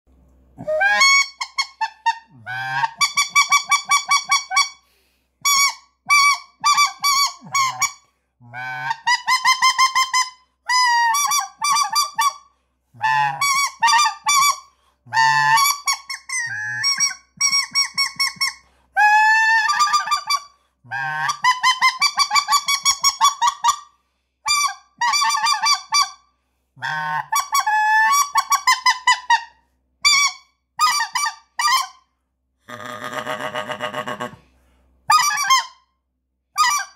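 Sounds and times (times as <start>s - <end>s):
goose call honks: 0.6s - 4.7s, 5.5s - 12.3s, 13.0s - 23.8s, 26.8s - 29.4s.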